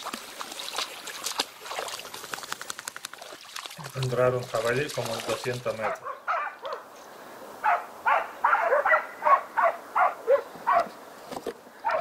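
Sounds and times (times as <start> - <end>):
dogs barking: 5.7 - 6.9, 7.6 - 10.9.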